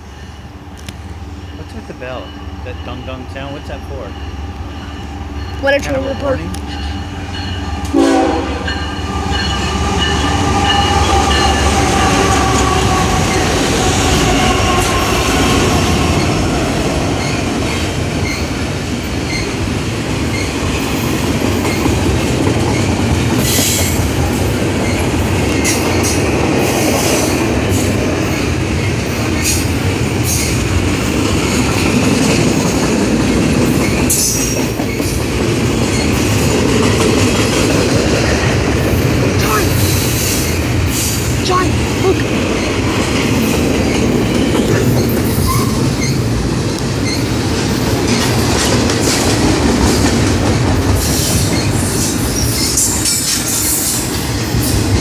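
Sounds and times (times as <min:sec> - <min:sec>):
train wheels rumbling and clattering: 0:00.0 - 0:55.0
locomotives passing: 0:00.6 - 0:55.0
high wheel squeals: 0:43.8 - 0:46.3.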